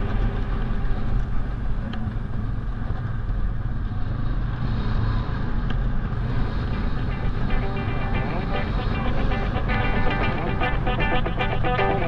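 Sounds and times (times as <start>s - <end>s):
atv engine running: 6.2s - 12.0s.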